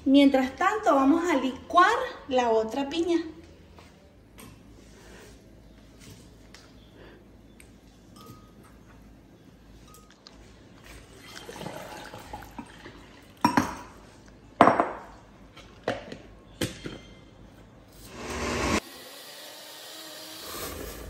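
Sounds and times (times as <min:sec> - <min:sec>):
water pouring into glass jar: 0:11.0 - 0:13.4
blender motor running: 0:18.1 - 0:21.0.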